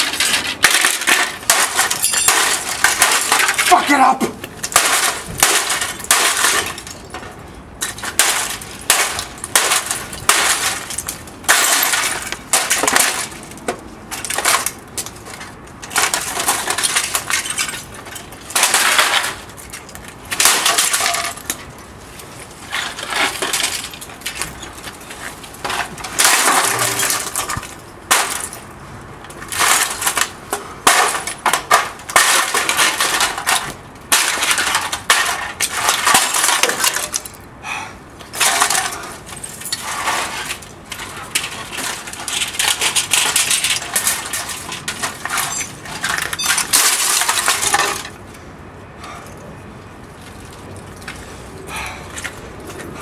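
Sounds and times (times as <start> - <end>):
glass and pieces clinking: 0.0 - 3.7, 41.4 - 48.1.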